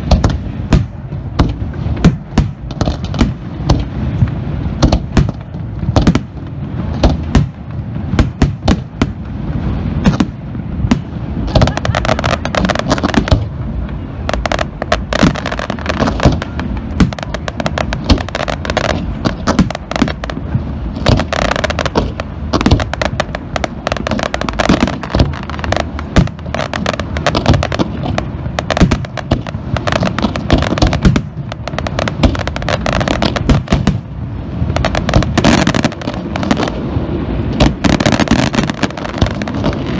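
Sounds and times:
firework shells bursting: 0.0s - 7.6s, 14.4s - 34.0s
firework crackling: 0.0s - 39.9s.

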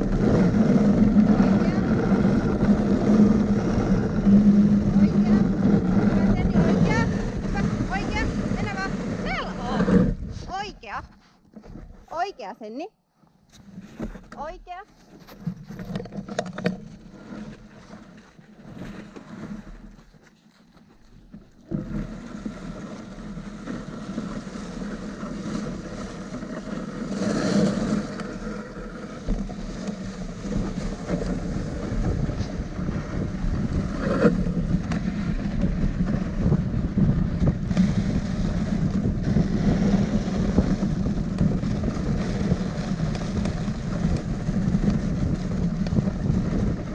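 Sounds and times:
wind buffeting microphone: 0.0s - 11.1s, 21.6s - 46.9s
sled runners scraping over snow: 0.0s - 12.8s, 13.5s - 46.9s.

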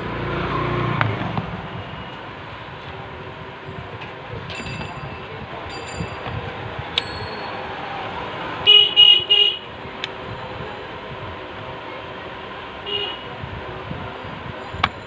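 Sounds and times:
steady background noise: 0.0s - 15.0s
vehicle horn tooting: 8.6s - 9.7s, 12.8s - 13.4s.

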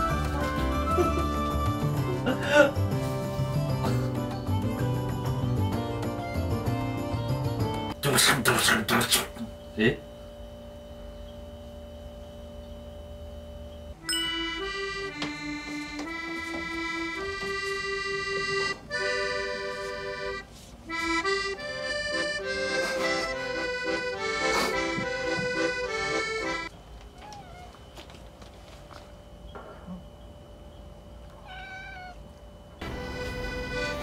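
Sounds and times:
accordion melody: 0.0s - 8.0s, 14.0s - 26.7s, 32.8s - 34.0s.

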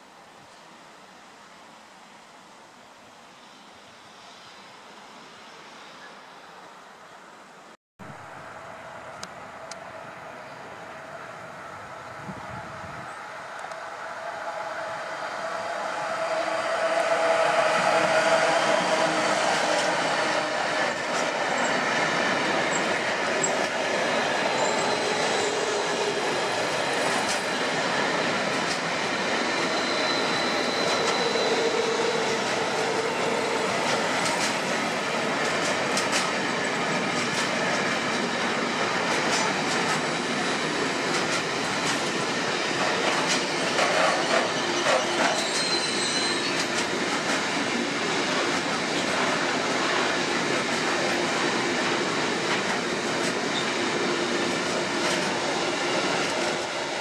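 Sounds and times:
freight train rolling by: 8.0s - 57.0s
electric locomotive passing: 8.1s - 57.0s
high wheel squeals: 15.2s - 26.6s, 29.0s - 34.3s, 42.5s - 46.9s.

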